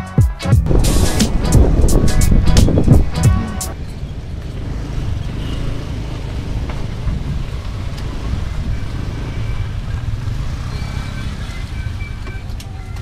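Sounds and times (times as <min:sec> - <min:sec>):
wind buffeting microphone: 0:00.6 - 0:10.3
motorcycle engine rumble: 0:00.6 - 0:13.0.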